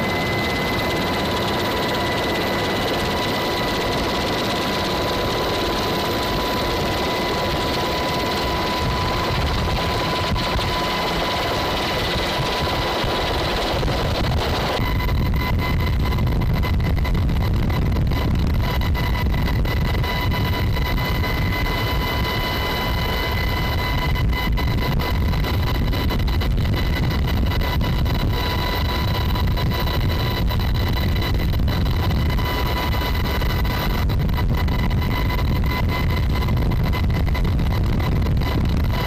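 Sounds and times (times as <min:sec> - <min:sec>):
constant high whine: 0:00.0 - 0:39.0
helicopter rotor and engine rumble: 0:00.0 - 0:39.0.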